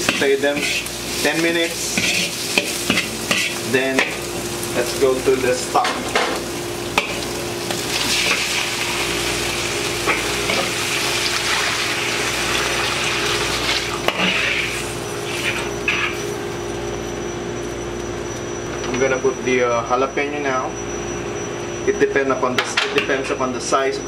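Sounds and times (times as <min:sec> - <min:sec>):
hot pan hissing: 0:00.0 - 0:16.7
food sizzling in a wok: 0:00.0 - 0:16.9
steady hum: 0:00.0 - 0:24.0.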